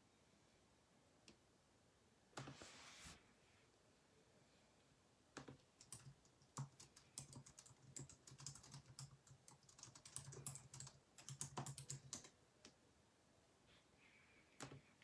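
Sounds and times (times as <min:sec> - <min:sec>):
typing on computer keyboard: 0:05.4 - 0:12.4.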